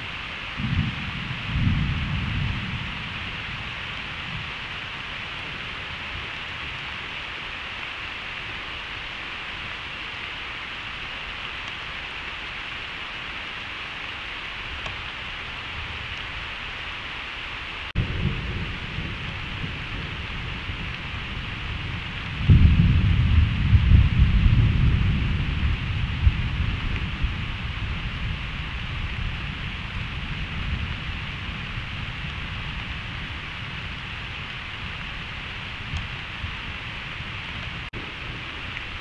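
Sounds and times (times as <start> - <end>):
thunder rumble: 0.0 - 7.8, 17.9 - 39.0
steady rain hiss: 0.0 - 39.0
loud thunder burst: 0.6 - 4.5, 18.0 - 32.9.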